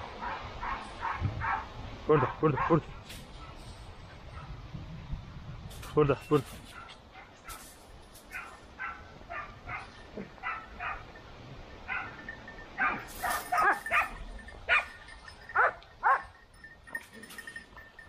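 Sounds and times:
dogs barking: 0.0 - 3.6, 8.3 - 11.2, 11.8 - 16.4.

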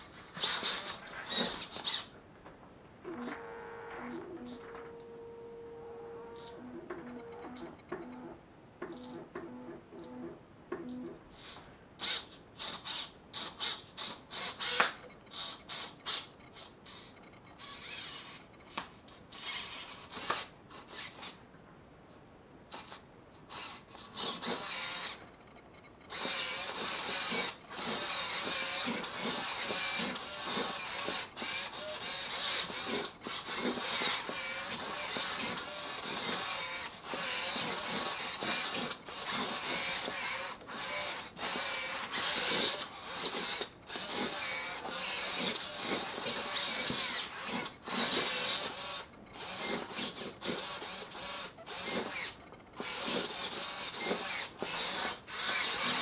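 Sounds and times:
servo motors whirring: 0.2 - 2.1, 10.9 - 18.4, 22.7 - 25.2, 26.1 - 56.0.

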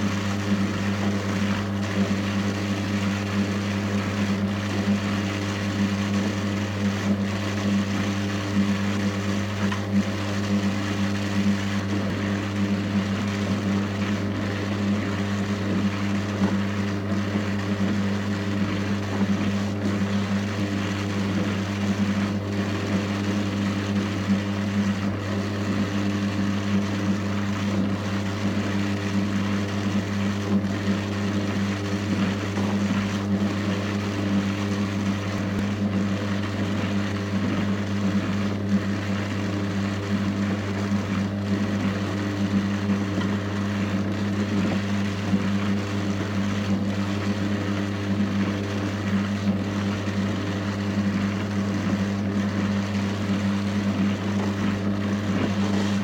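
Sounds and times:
drum carder motor humming: 29.8 - 56.0.

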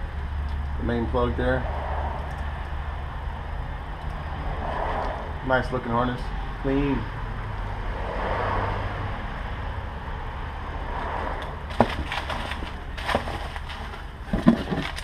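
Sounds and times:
packaging rustling and crinkling: 11.7 - 15.0.

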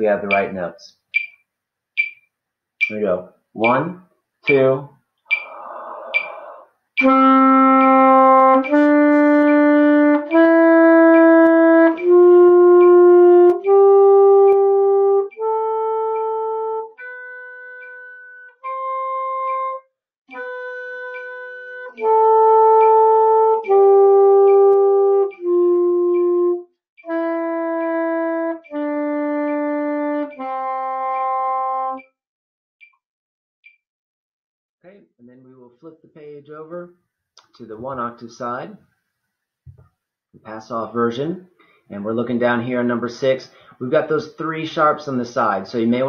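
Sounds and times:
alto saxophone playing scale: 7.0 - 32.0.

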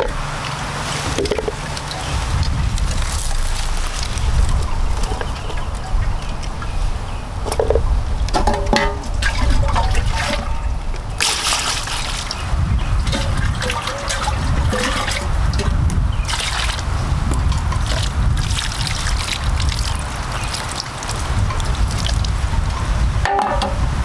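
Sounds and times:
steady low rumble: 0.0 - 24.0
water splashing and trickling: 0.0 - 24.0.

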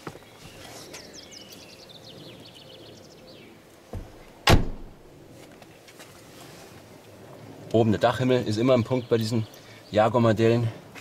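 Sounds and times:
bird chirping: 0.0 - 3.7, 8.5 - 10.2
car door shutting: 3.9 - 5.0.

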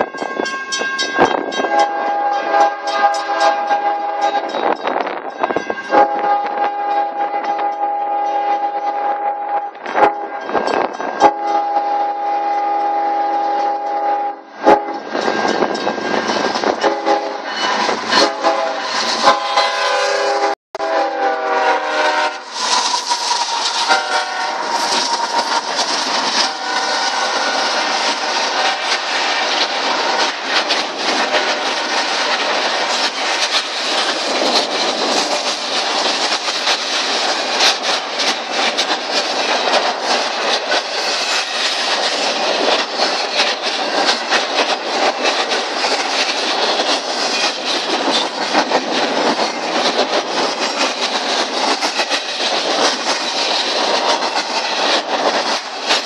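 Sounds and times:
train wheels rumbling and clattering: 0.0 - 56.0
train horn chord: 1.6 - 4.5, 5.8 - 10.5, 11.2 - 15.0, 16.8 - 17.5, 18.1 - 22.5, 23.8 - 24.8, 26.4 - 28.0.

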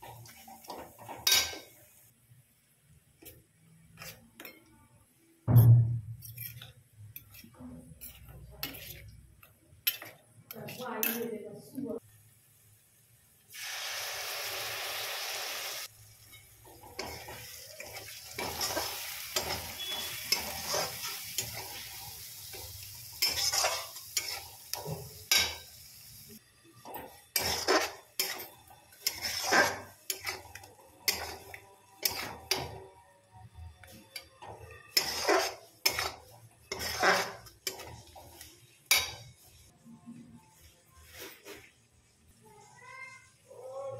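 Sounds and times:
spatula scraping metal pan: 6.2 - 9.1, 16.3 - 21.9, 23.2 - 24.6, 27.2 - 32.8, 34.5 - 39.4
paste sizzling in hot oil: 12.4 - 26.4, 27.2 - 32.6, 34.9 - 38.5.

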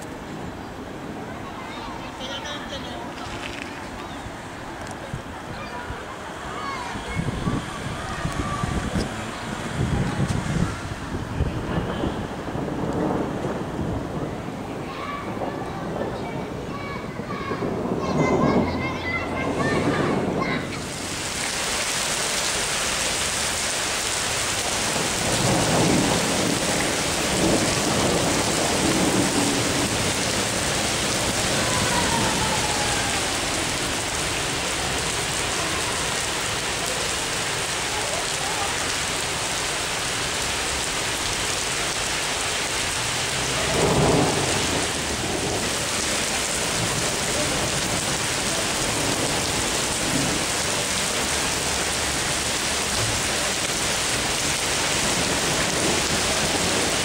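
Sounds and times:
heavy rain on pavement: 0.0 - 57.0
thunder rumbling: 6.9 - 22.8, 23.4 - 57.0.

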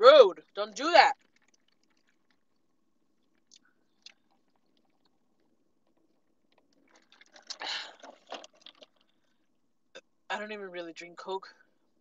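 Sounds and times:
chewing and wet mouth sounds: 1.1 - 9.3.

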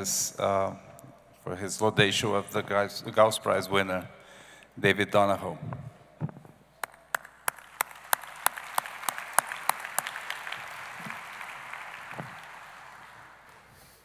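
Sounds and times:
audience applause: 6.8 - 14.0
close hand claps: 6.8 - 14.0.

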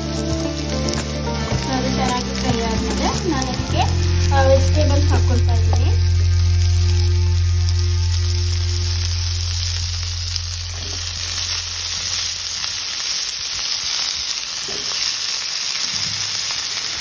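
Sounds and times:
vegetables sizzling in oil: 0.0 - 17.0
low steady hum: 1.4 - 13.0.

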